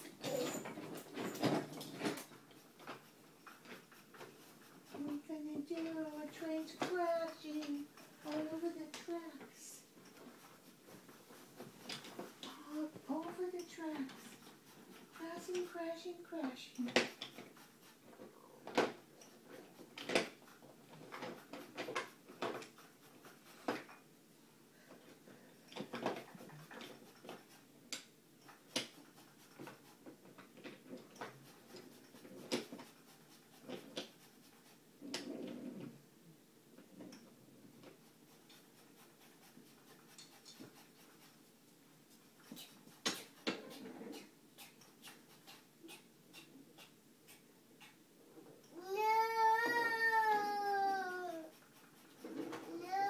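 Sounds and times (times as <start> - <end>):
wooden toy trains clicking: 0.0 - 24.0, 24.9 - 35.3, 48.7 - 53.0.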